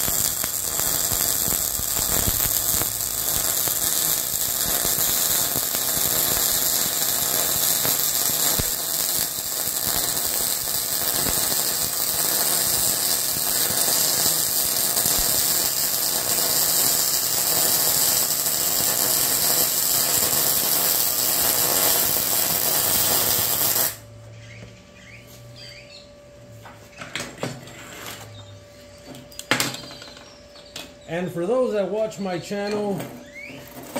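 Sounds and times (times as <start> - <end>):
welding arc crackling: 0.0 - 24.0
welding torch clacking down: 0.0 - 24.0, 32.5 - 33.9.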